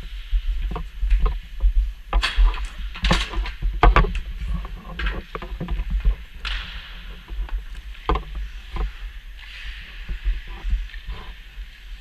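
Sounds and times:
steady low rumble: 0:00.0 - 0:12.0
hockey gear knocks and clicks: 0:00.7 - 0:09.0.

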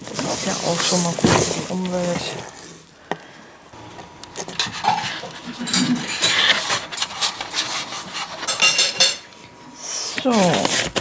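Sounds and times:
packing paper rustling: 0:00.0 - 0:03.0, 0:10.2 - 0:11.0.

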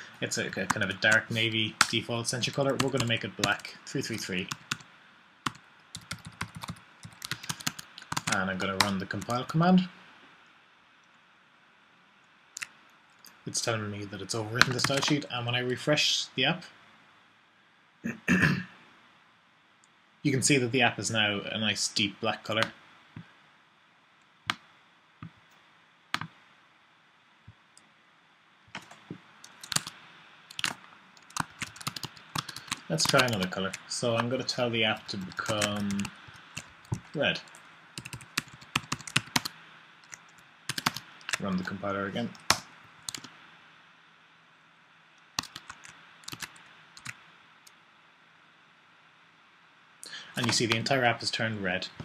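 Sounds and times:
faint steady hiss: 0:00.0 - 0:52.0
computer keyboard keystrokes: 0:05.5 - 0:09.4, 0:14.6 - 0:15.2, 0:28.8 - 0:33.5, 0:35.2 - 0:39.5, 0:40.1 - 0:41.4, 0:45.4 - 0:47.2
computer mouse clicks: 0:26.2 - 0:26.4.

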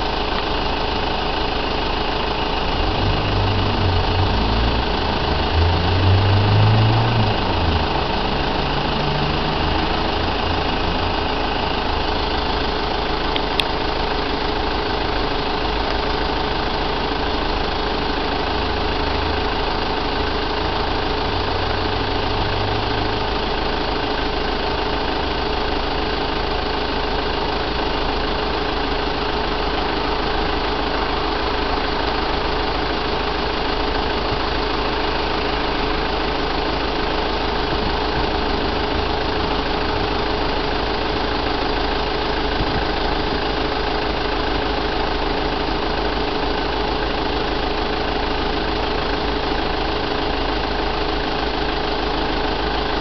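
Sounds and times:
vehicle engine idling: 0:00.0 - 0:53.0
low hum: 0:02.4 - 0:12.6.

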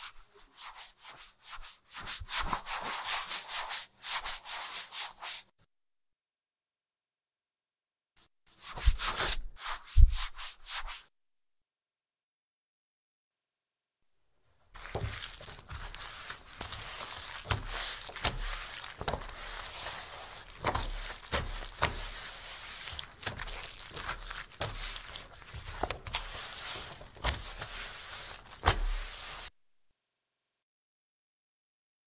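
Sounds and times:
wet towel rubbing on wooden table: 0:14.7 - 0:29.5.

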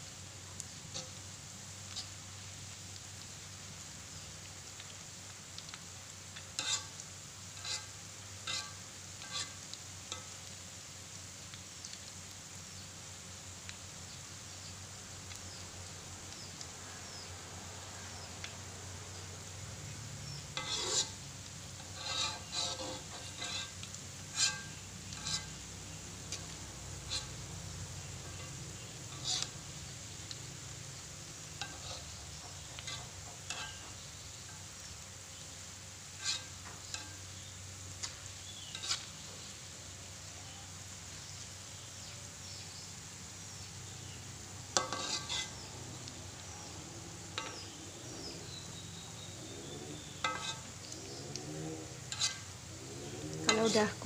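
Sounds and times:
shallots sizzling in hot oil: 0:00.0 - 0:54.0
spatula scraping and knocking wok: 0:00.5 - 0:02.3, 0:05.5 - 0:10.6, 0:19.8 - 0:40.3, 0:43.6 - 0:54.0.

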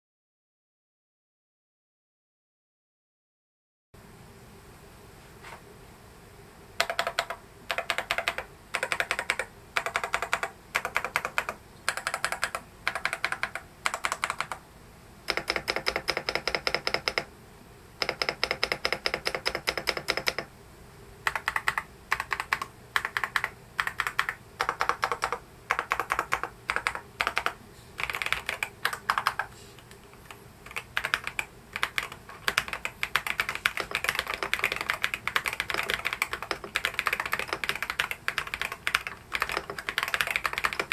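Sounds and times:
mechanical keyboard typing: 0:06.8 - 0:14.6, 0:15.3 - 0:17.3, 0:18.0 - 0:20.5, 0:21.3 - 0:40.9.

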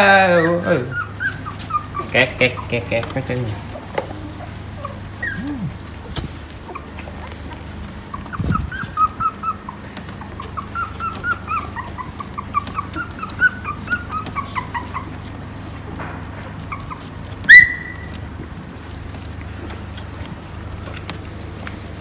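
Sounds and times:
puppy whimpering: 0:00.0 - 0:18.5.

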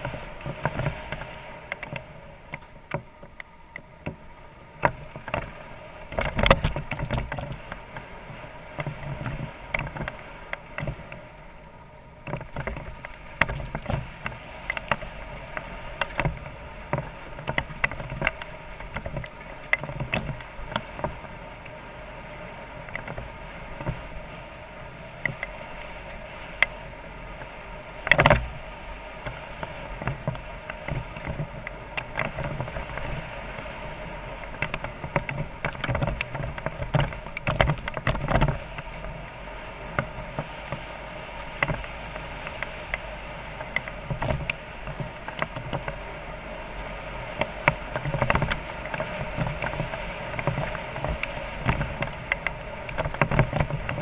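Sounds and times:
motorcycle knocks and rattles: 0:06.1 - 0:07.9, 0:16.0 - 0:21.2, 0:28.0 - 0:28.5, 0:34.5 - 0:38.9, 0:41.5 - 0:46.0, 0:47.4 - 0:54.0.

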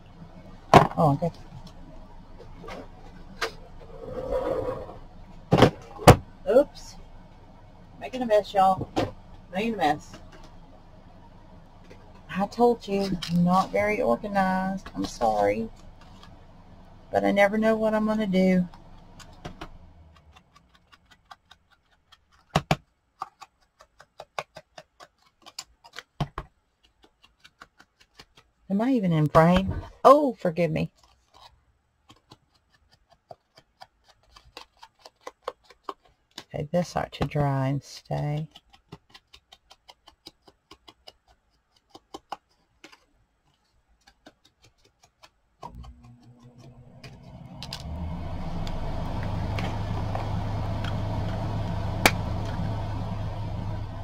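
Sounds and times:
motor hum: 0:00.0 - 0:21.0, 0:45.6 - 0:54.0
light clicking of paper pieces: 0:19.2 - 0:28.6, 0:30.9 - 0:36.5, 0:38.1 - 0:47.8.

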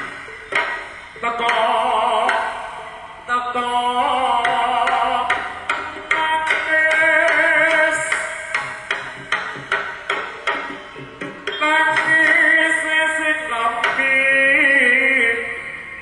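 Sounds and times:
wavering held melody: 0:00.0 - 0:16.0
sharp drum strokes: 0:04.4 - 0:13.0.

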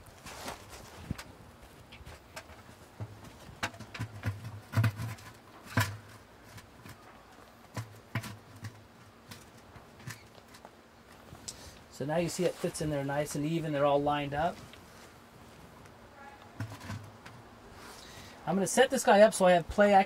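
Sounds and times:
hollow plastic knocks and clunks: 0:02.4 - 0:06.2.

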